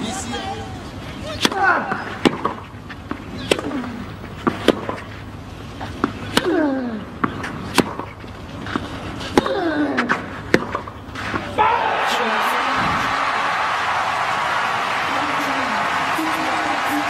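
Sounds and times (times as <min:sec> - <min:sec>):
racket striking tennis ball: 0:01.4 - 0:05.1, 0:07.2 - 0:11.6.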